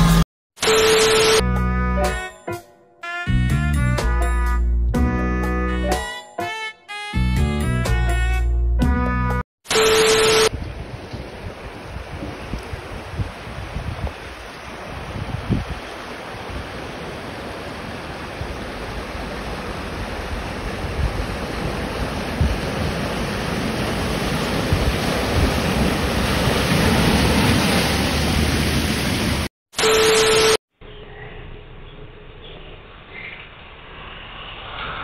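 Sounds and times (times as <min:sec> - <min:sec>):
vehicle splashing through floodwater: 0:13.5 - 0:29.5.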